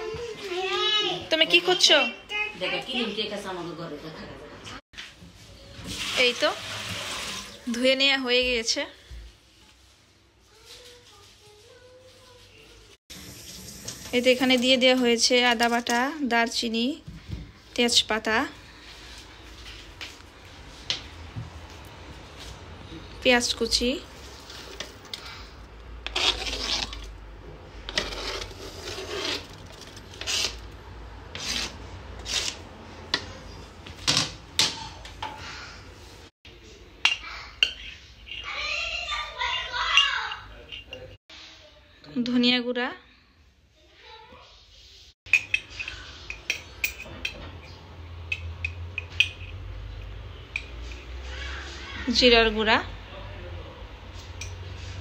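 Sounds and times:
utensil scraping cutting board: 26.0 - 27.1, 27.9 - 30.7, 31.3 - 32.7
metal spoon clinking on glass jar: 40.0 - 41.2, 45.3 - 47.4, 48.3 - 49.6.

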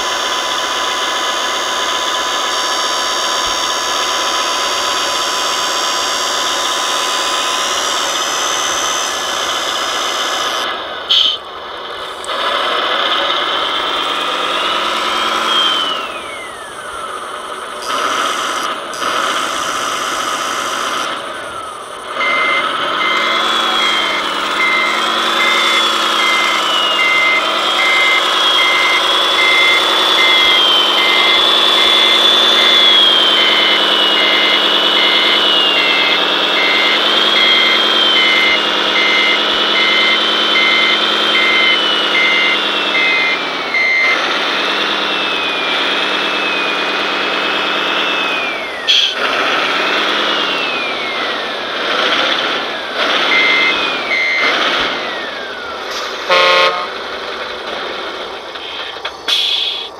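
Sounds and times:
diesel engine sound with whine: 0.0 - 59.9
reverse warning beeper: 14.0 - 44.4, 53.2 - 57.0.

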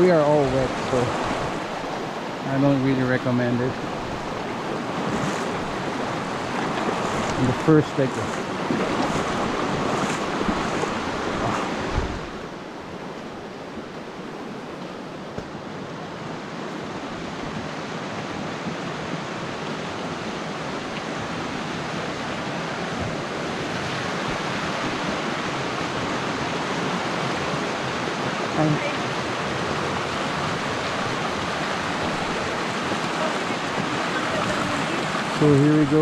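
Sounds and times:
creek water rushing over rocks: 0.0 - 36.0.

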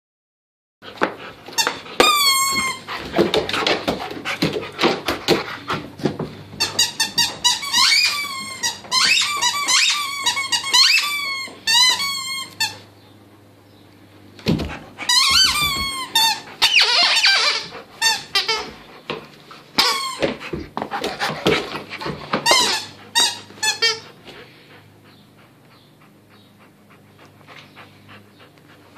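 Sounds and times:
plush toy squeaking: 6.6 - 12.8, 15.1 - 18.7.

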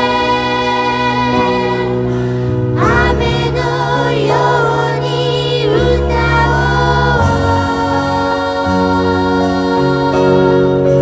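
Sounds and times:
sustained instrumental chords: 0.0 - 11.0
woman singing: 2.8 - 10.7.

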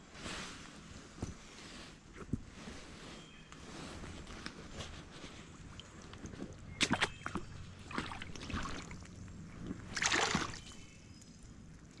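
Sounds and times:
water splashing at pond edge: 5.7 - 12.0.

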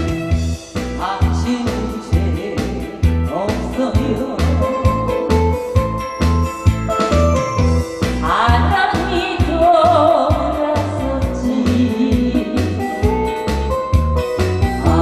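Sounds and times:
vibrato singing voice: 0.0 - 5.3, 8.0 - 13.8, 14.6 - 15.0
song over loudspeakers: 0.0 - 15.0.

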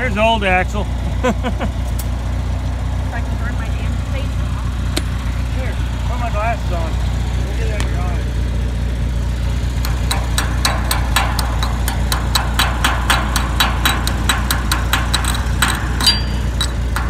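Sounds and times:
engine idling: 0.0 - 17.0
chipping hammer tapping on steel: 9.8 - 17.0.

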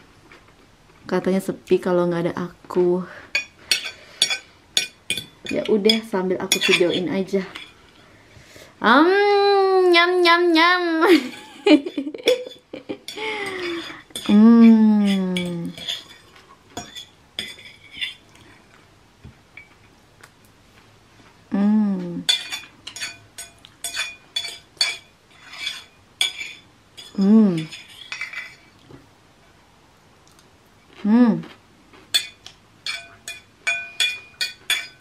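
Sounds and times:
fork clinking on ceramic plate: 3.4 - 7.0, 15.0 - 18.2, 22.3 - 28.6, 32.1 - 35.0
person humming falling pitch: 14.3 - 15.4, 21.5 - 22.2, 27.2 - 27.6.

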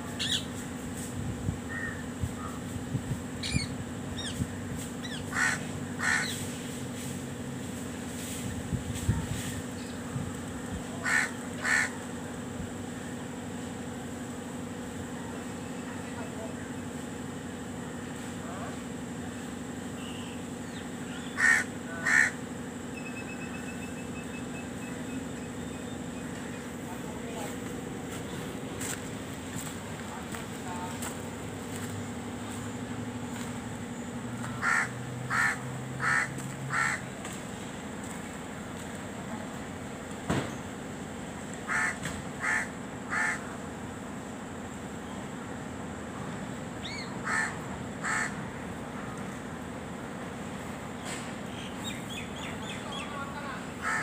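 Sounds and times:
steady low hum: 0.0 - 54.0
harsh caw-like calls: 5.0 - 6.4, 11.0 - 12.1, 21.2 - 22.4, 34.4 - 37.2, 41.6 - 43.6, 47.2 - 48.4, 53.8 - 54.0.

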